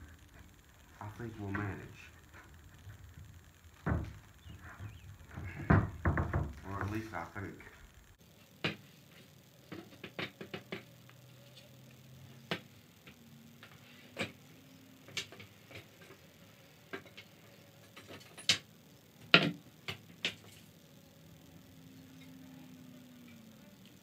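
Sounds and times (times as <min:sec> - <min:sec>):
wooden parts knocking: 0:01.2 - 0:08.0.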